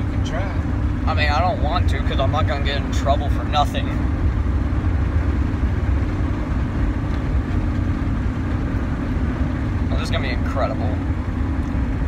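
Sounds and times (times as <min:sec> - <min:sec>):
road noise: 0:00.0 - 0:12.0
truck engine rumbling: 0:00.0 - 0:12.0.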